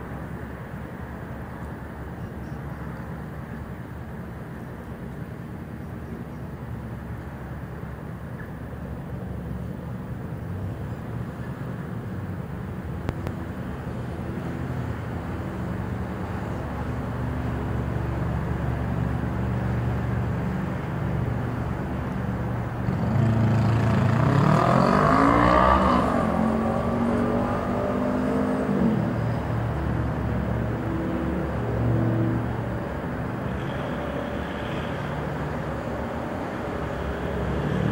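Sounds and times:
engine passing close: 0:22.8 - 0:32.7.

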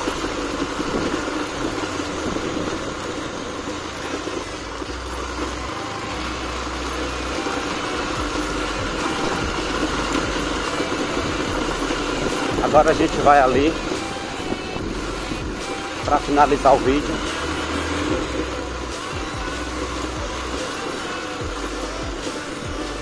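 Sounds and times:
vehicle engine and road noise: 0:00.0 - 0:23.0.

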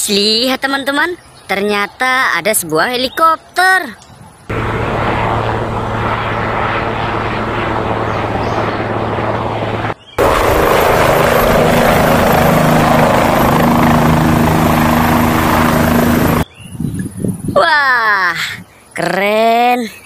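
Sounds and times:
helicopter hovering low: 0:04.5 - 0:16.4
helicopter rotors and turbine engine: 0:04.5 - 0:16.5.

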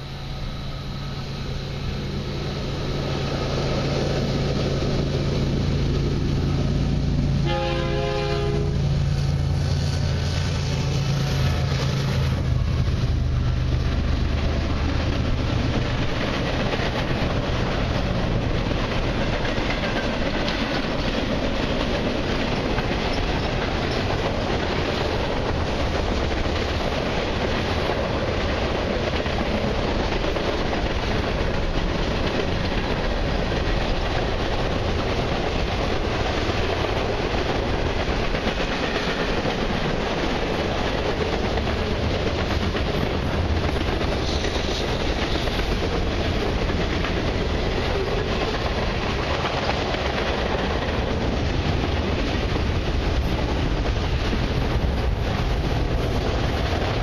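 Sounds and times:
diesel locomotives passing: 0:00.0 - 0:57.0
freight cars rumbling and clacking: 0:01.2 - 0:57.0
train horn blast: 0:07.4 - 0:09.0.

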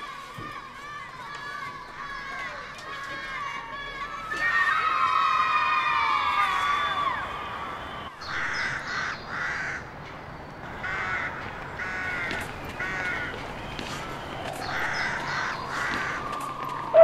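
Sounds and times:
crow cawing: 0:08.2 - 0:09.9, 0:10.7 - 0:16.3.

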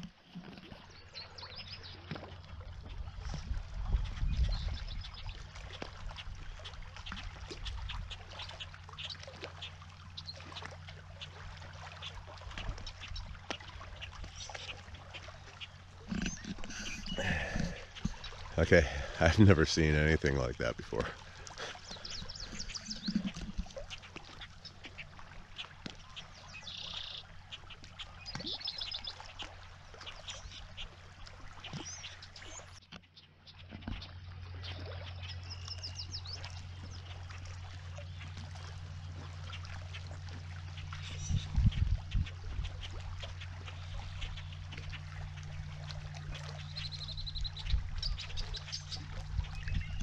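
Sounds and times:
small waves lapping on shore: 0:00.0 - 0:50.0
birds chirping: 0:00.7 - 0:50.0
low steady hum: 0:01.2 - 0:50.0
faint steady hum: 0:07.7 - 0:23.6
bird trilling: 0:16.1 - 0:18.4, 0:21.8 - 0:23.5.

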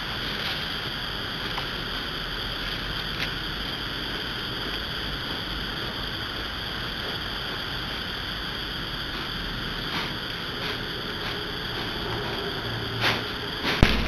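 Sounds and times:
background hiss: 0:00.0 - 0:14.0.

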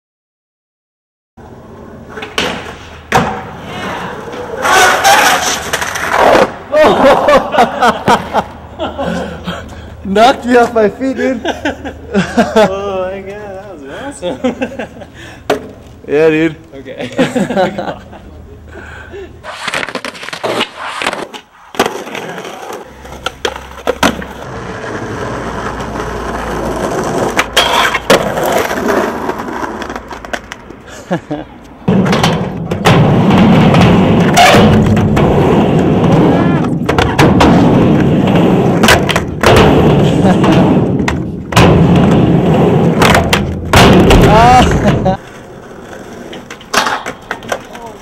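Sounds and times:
skateboard wheels rolling on concrete: 0:01.4 - 0:48.0
skateboard clacking on ground: 0:19.5 - 0:30.8, 0:42.9 - 0:48.0.

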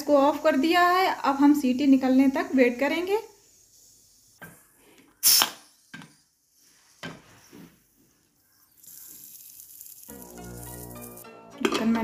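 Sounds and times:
pressure cooker steam hissing: 0:00.0 - 0:04.6, 0:05.2 - 0:07.2.

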